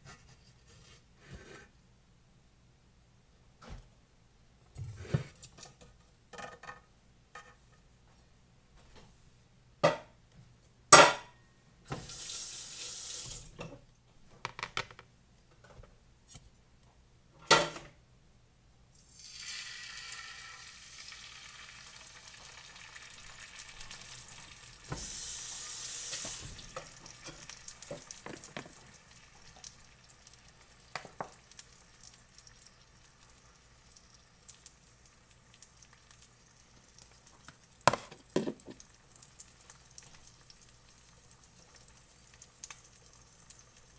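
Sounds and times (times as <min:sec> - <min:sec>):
eggs sizzling in hot fat: 0:11.9 - 0:13.6, 0:18.9 - 0:43.9.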